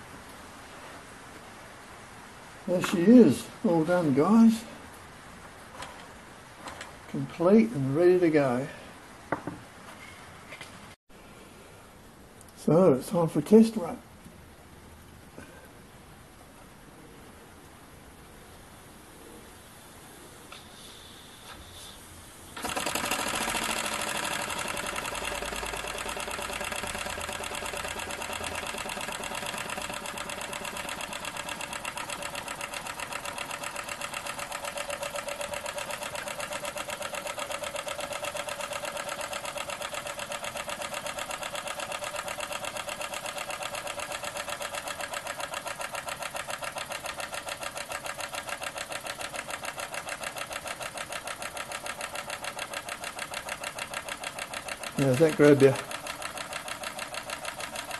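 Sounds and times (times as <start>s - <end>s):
flywheel flicked: 22.6s - 57.9s
model steam engine chuffing: 22.6s - 57.9s.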